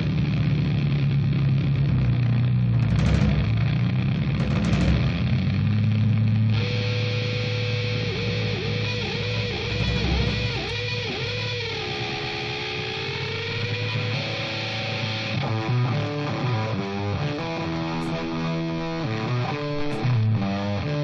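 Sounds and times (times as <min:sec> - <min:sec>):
bass guitar playing: 0:00.0 - 0:21.0
electric guitar playing: 0:00.0 - 0:21.0.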